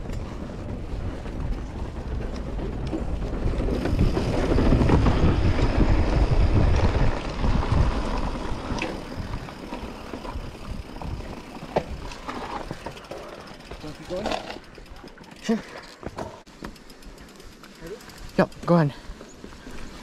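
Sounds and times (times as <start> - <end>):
wind buffeting microphone: 0.0 - 12.9
bike rattling: 0.0 - 20.0
tyres rumbling on dirt trail: 0.0 - 20.0
tyres rolling over wooden boards: 0.8 - 15.2.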